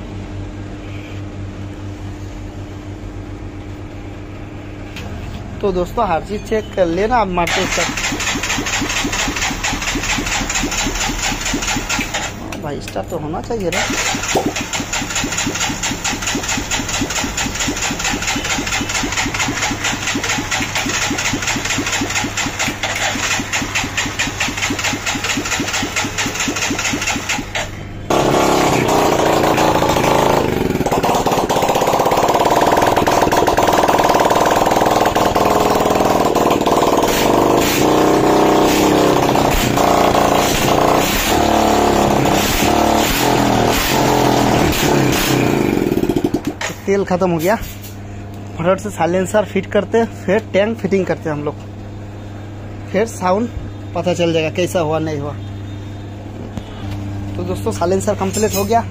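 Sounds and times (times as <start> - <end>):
motorcycle engine running unsilenced: 7.5 - 12.5, 13.6 - 46.8.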